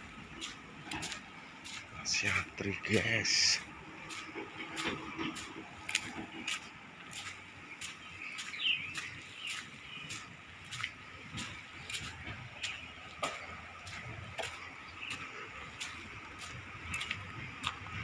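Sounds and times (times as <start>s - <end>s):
footsteps on gravel: 0.0s - 18.0s
bird chirp: 6.0s - 17.2s.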